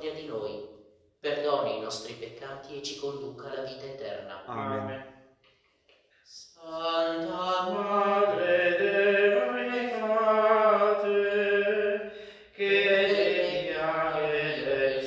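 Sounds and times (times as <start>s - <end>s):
man singing a chant: 6.6s - 15.0s.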